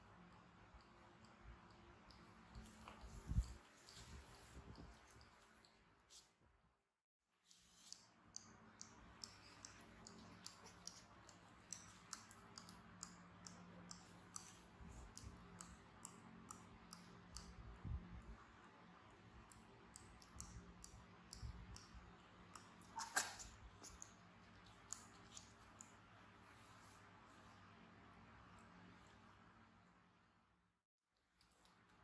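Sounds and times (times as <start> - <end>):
baby monkey sucking fingers: 22.6 - 25.6.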